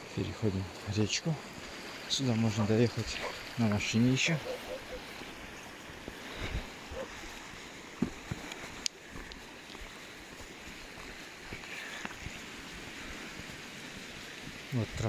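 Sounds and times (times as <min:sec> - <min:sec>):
river rushing over stones: 0:00.0 - 0:15.0.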